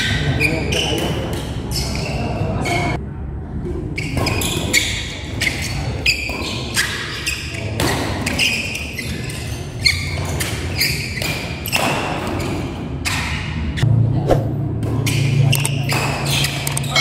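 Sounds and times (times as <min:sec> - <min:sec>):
shoes squeaking on court floor: 0:00.0 - 0:03.0, 0:04.0 - 0:12.8, 0:15.0 - 0:17.0
rackets hitting shuttlecock: 0:14.3 - 0:16.9.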